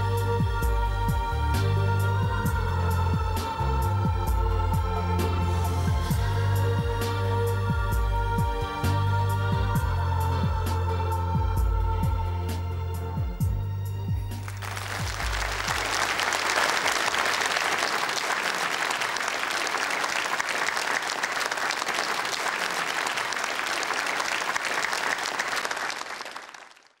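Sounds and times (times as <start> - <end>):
low song notes: 0.0 - 17.9
audience applauding: 14.4 - 27.0.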